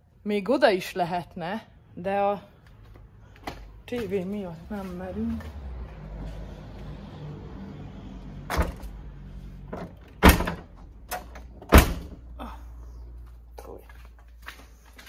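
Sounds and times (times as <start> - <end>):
car doors slamming: 9.7 - 12.2.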